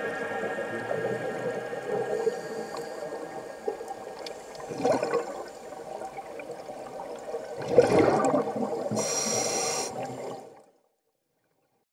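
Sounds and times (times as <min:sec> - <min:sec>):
underwater bubbling: 0:00.0 - 0:10.8
breath sounds: 0:08.9 - 0:10.2
brief hiss: 0:08.9 - 0:10.2.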